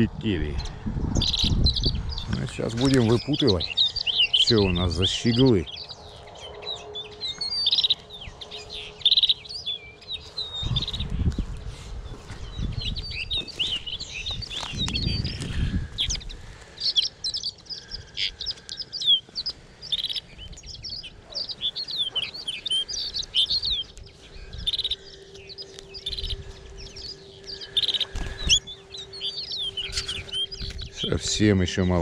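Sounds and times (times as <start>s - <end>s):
wind rumble on microphone: 0.0s - 6.8s, 10.2s - 16.8s, 29.7s - 32.0s
goldfinches twittering: 0.0s - 32.0s.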